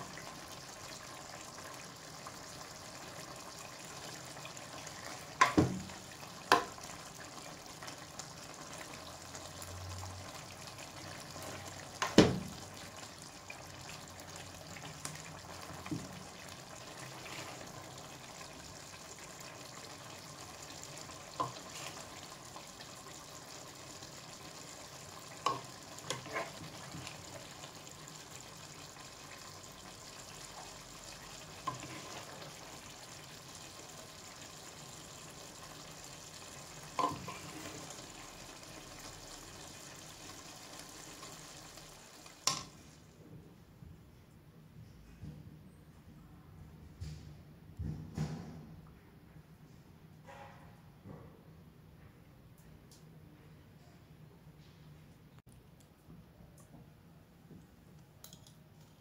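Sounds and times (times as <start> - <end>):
stew sizzling in a pan: 0.0 - 43.1.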